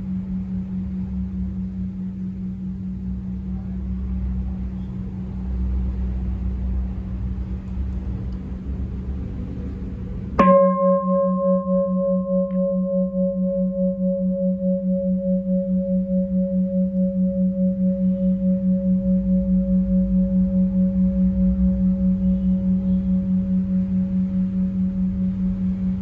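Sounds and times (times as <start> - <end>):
bowl bell humming: 0.0 - 26.0
bowl bell struck and ringing: 9.6 - 26.0.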